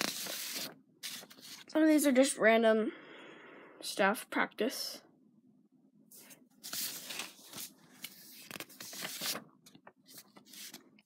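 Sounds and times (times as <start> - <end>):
pages rustling: 0.0 - 1.7, 6.2 - 11.0.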